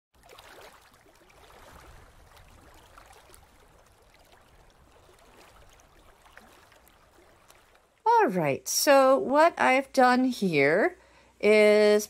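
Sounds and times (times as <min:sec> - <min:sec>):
aquarium water trickling: 0:00.2 - 0:08.3.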